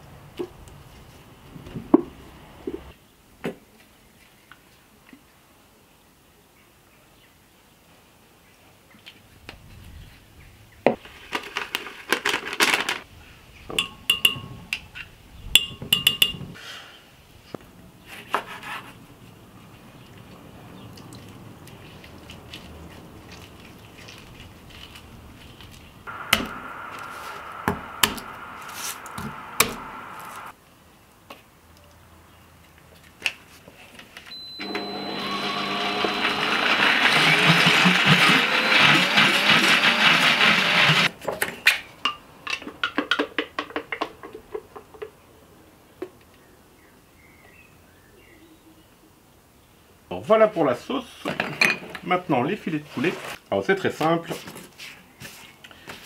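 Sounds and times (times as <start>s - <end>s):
utensils knocking on glass jar: 13.7s - 14.6s, 15.6s - 16.5s
blender motor running: 34.5s - 41.1s.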